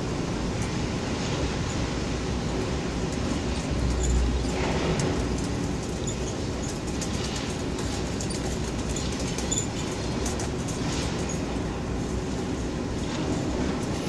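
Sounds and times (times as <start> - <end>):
street traffic: 0.0 - 14.0
faint clinks and clicks: 3.2 - 11.5.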